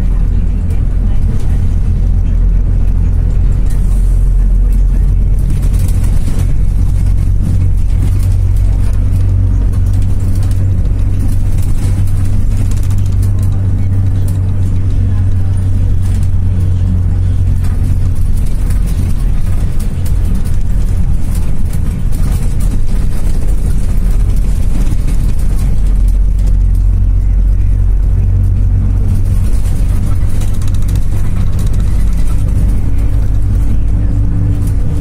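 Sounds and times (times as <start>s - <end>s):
bus diesel engine drone: 0.0s - 35.0s
road noise: 0.0s - 35.0s.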